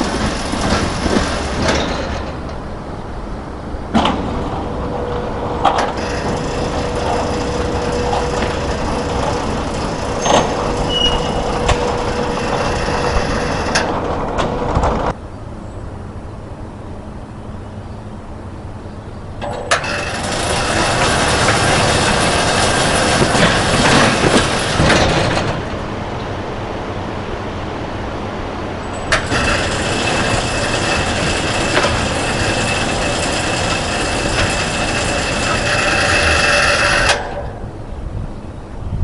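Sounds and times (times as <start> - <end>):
roll-up door motor and curtain: 0.0 - 2.6, 4.6 - 15.1, 19.4 - 25.8, 29.0 - 37.6.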